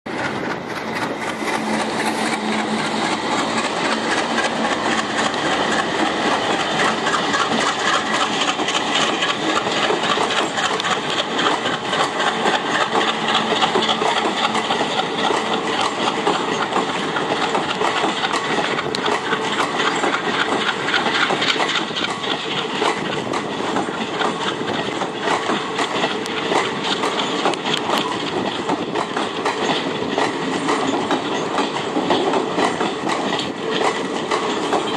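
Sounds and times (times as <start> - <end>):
diesel locomotive engine: 0.1 - 34.9
train wheels clattering: 0.1 - 34.9.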